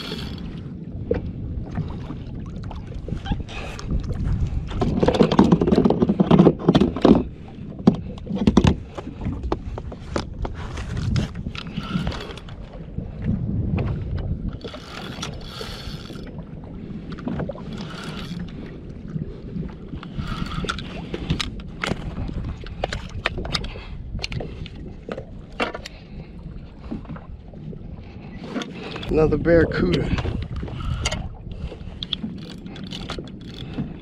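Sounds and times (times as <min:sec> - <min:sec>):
water splashing against kayak hull: 0:00.0 - 0:34.0
wind on microphone: 0:00.0 - 0:34.0
sharp clicks and knocks: 0:04.8 - 0:08.8.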